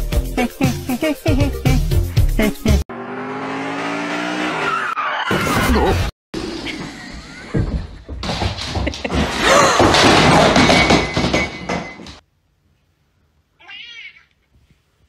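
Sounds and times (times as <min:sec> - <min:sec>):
cat meowing: 0:13.6 - 0:14.4.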